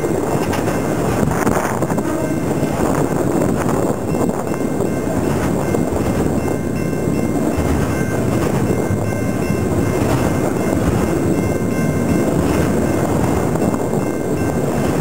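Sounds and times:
steel wheels rumbling on rails: 0.0s - 15.0s
faint high ringing tones: 3.8s - 14.8s.

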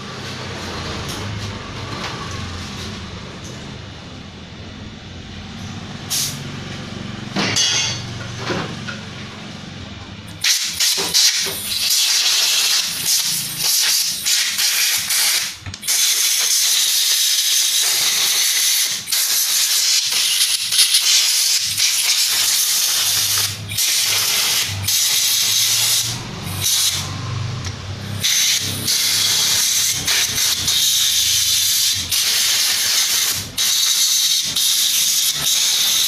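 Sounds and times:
compressed air blow gun hissing: 28.2s - 36.0s.

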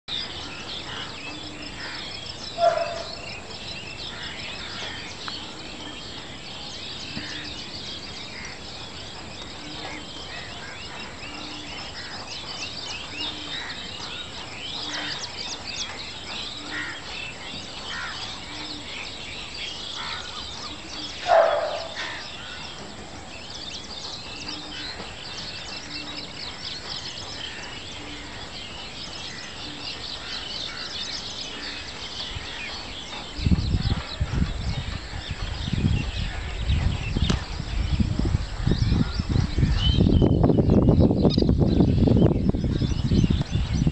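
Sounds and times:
dense high bird chirping: 0.1s - 43.9s
loud short bird calls: 20.0s - 22.7s.

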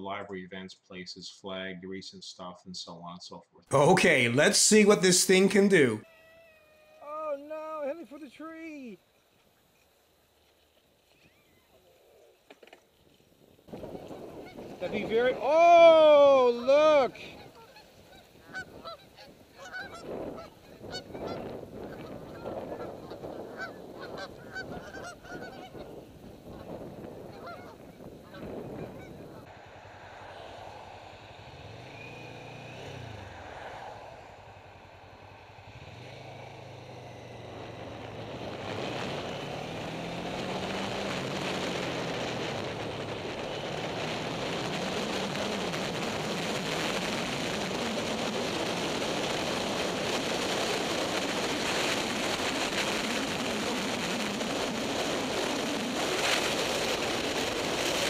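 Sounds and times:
wind rushing over microphone: 13.7s - 58.0s
geese honking: 17.4s - 25.8s, 27.3s - 29.5s
motorcycle engine accelerating: 29.5s - 58.0s.

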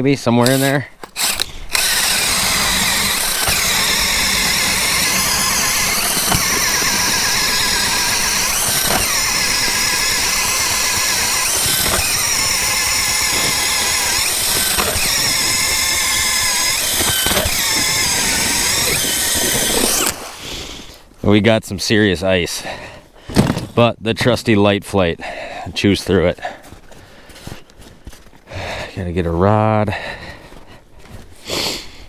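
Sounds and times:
drill motor whine boring ice: 0.4s - 20.4s.

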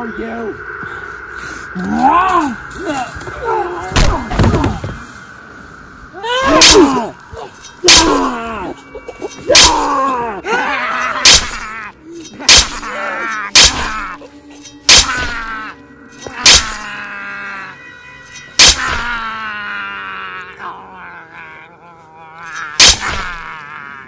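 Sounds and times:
man screaming and groaning: 6.1s - 8.8s, 9.5s - 14.3s, 18.6s - 24.0s.

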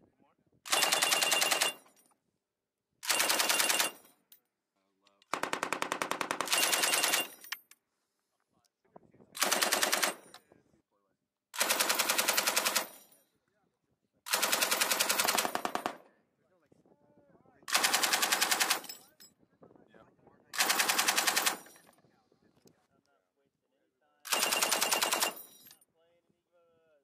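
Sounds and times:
machine gun bursts: 0.7s - 1.8s, 3.0s - 4.0s, 5.3s - 7.4s, 9.4s - 10.2s, 11.6s - 12.9s, 14.3s - 16.0s, 17.7s - 18.9s, 20.6s - 21.7s, 24.3s - 25.4s.

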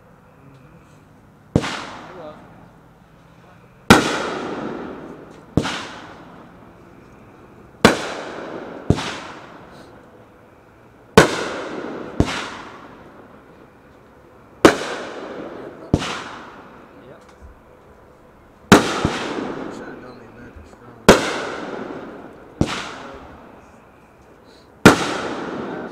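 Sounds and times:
firework bangs echoing: 1.5s - 2.6s, 3.8s - 6.9s, 7.7s - 10.1s, 11.1s - 13.9s, 14.6s - 17.7s, 18.7s - 23.8s, 24.5s - 25.9s.

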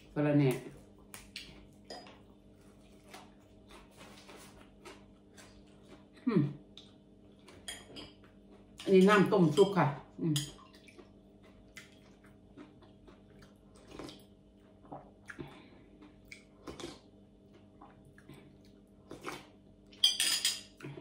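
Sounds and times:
spoon clinking: 20.0s - 20.6s.

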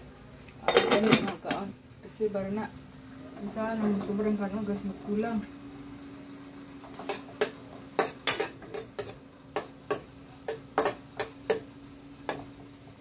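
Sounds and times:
faint steady hum: 0.0s - 13.0s
metal spoon scraping a wok: 6.9s - 12.4s.

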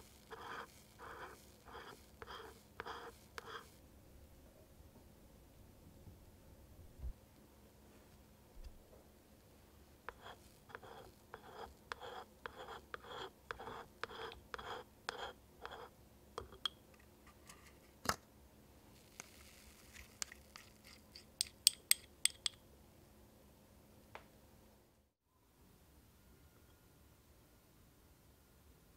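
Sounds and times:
spatula stirring batter in bowl: 0.0s - 3.7s, 10.1s - 16.6s.

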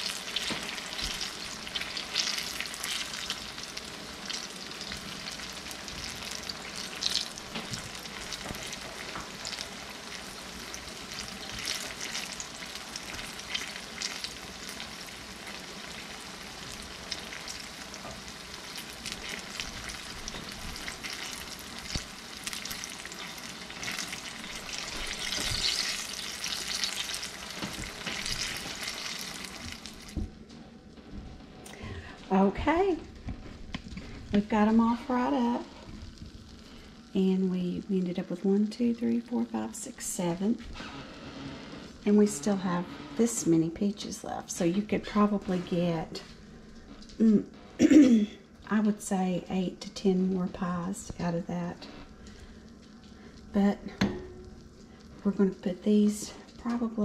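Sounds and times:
pies sizzling in hot grease: 0.0s - 30.3s, 50.5s - 57.0s
crackling pops: 18.1s - 30.3s.

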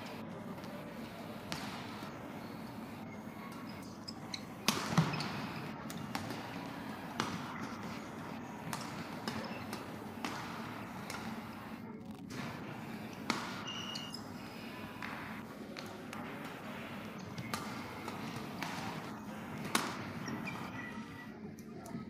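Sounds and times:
rackets hitting shuttlecock: 17.2s - 19.0s, 19.6s - 20.3s.

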